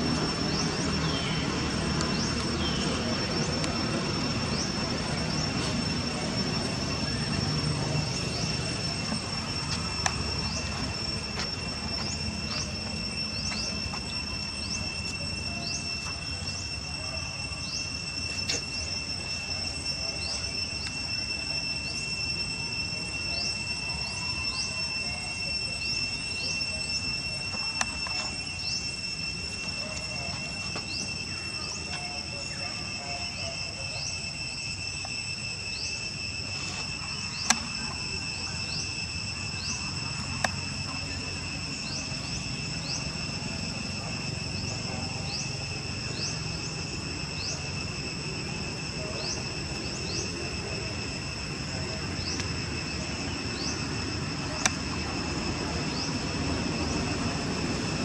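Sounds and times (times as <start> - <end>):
insects droning: 0.0 - 58.0
short rising chirps: 0.0 - 58.0
sharp clicks: 37.4 - 38.0.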